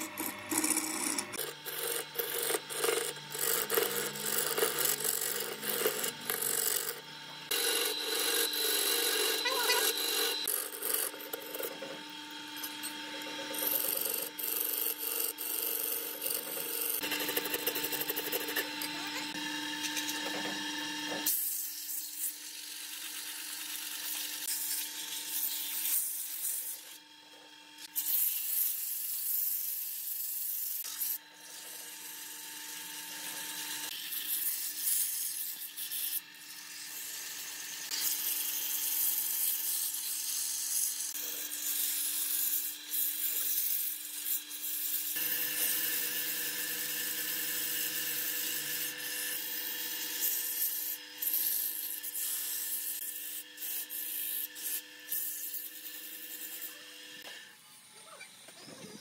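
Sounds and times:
lathe motor hum: 0:00.0 - 0:21.2.

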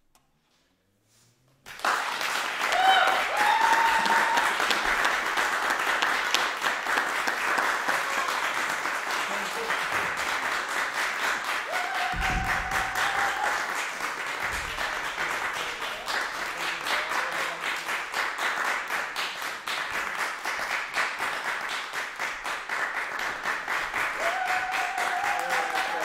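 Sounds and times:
audience applauding: 0:01.7 - 0:26.0
low thuds: 0:12.0 - 0:15.5.

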